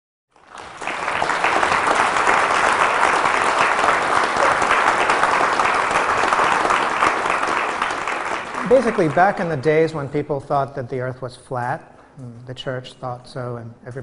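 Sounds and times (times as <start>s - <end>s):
audience applauding: 0.3s - 10.0s.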